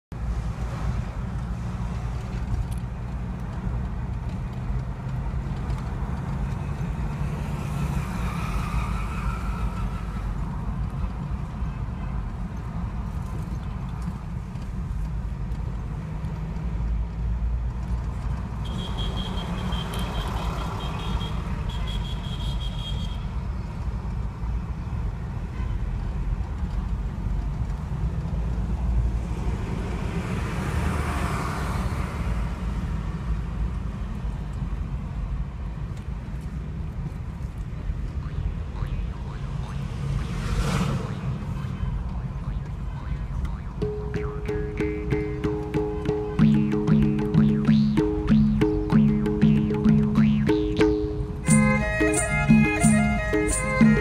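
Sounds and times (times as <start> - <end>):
car engine and tyre rumble: 0.1 - 43.9
high beeping tone: 42.4 - 54.0.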